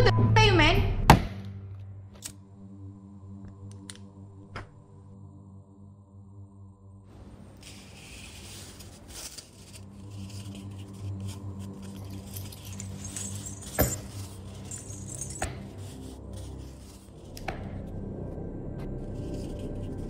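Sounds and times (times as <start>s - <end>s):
low steady drone: 2.3s - 20.0s
leather tool roll rustling: 7.1s - 17.4s
metal instruments clinking: 7.6s - 17.4s.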